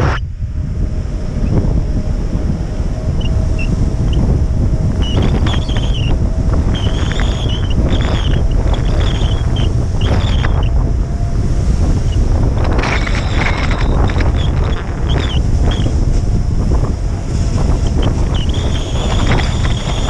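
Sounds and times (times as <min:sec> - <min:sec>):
wind buffeting microphone: 0:00.0 - 0:20.0
short high squeaks: 0:05.0 - 0:10.7, 0:12.6 - 0:15.9, 0:17.9 - 0:20.0.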